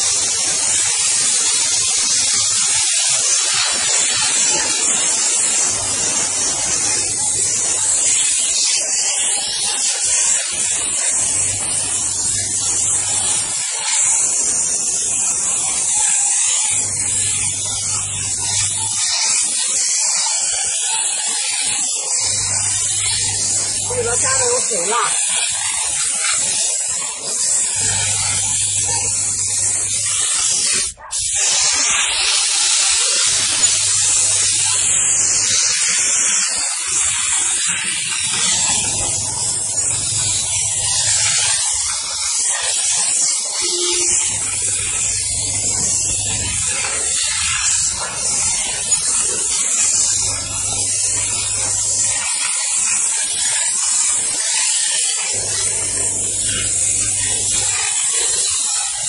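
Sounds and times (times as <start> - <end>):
steam spray gun hissing: 0.0 - 59.0
low machine hum: 43.6 - 48.8.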